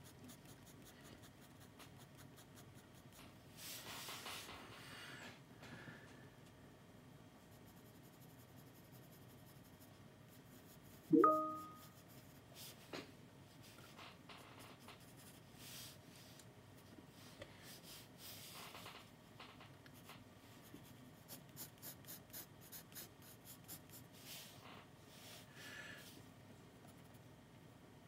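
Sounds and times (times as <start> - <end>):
pencil scratching on paper: 0.0 - 3.2, 7.5 - 11.1, 20.7 - 24.1.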